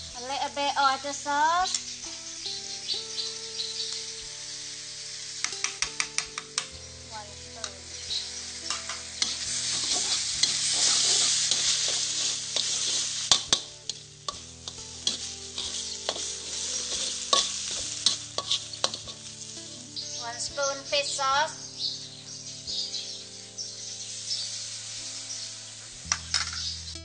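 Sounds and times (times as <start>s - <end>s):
meat sizzling in a wok: 0.0s - 27.0s
metal spatula scraping a pan: 7.9s - 20.0s.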